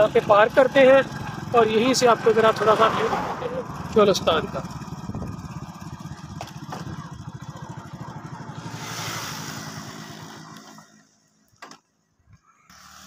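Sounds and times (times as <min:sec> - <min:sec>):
motorcycle engine putter: 0:03.6 - 0:11.9.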